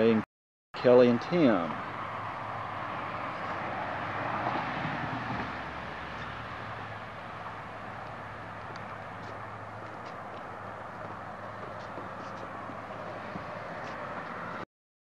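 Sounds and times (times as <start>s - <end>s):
road traffic rushing: 0.8s - 14.7s.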